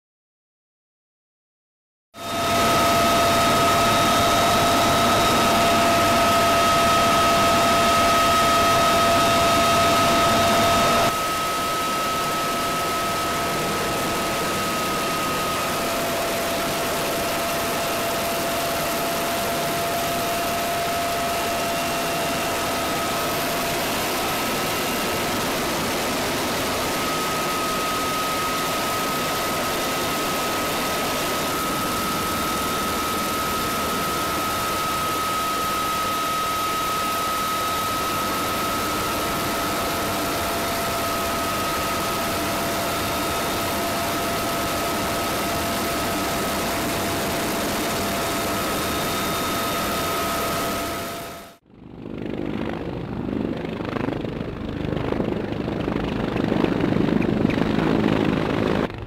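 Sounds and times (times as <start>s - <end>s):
aircraft turbine whine: 2.2s - 59.0s.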